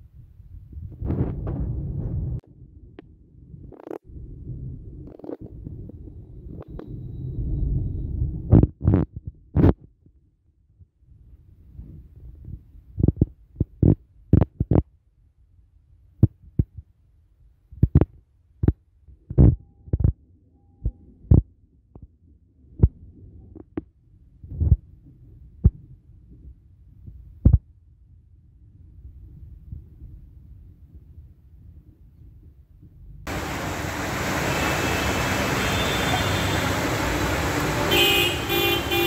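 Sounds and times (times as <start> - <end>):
heavy rain rumble in car cabin: 33.3 - 39.0.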